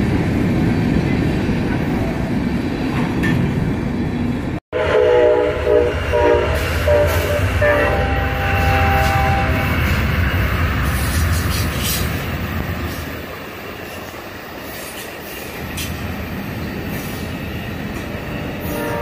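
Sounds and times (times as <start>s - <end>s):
diesel locomotive rumble: 0.0s - 19.0s
train wheels rushing on rail: 0.0s - 19.0s
rail joint clicks: 2.8s - 3.9s, 10.8s - 19.0s
train horn: 4.7s - 10.0s, 18.6s - 19.0s.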